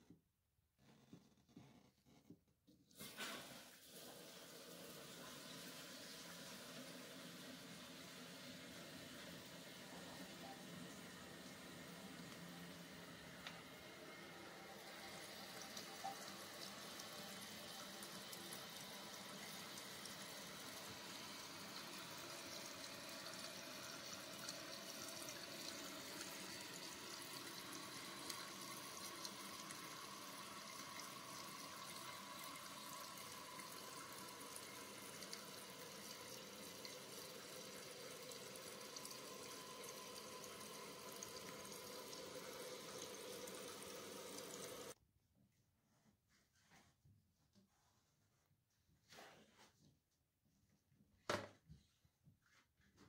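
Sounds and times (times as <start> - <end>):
toilet tank refilling: 2.9 - 45.0.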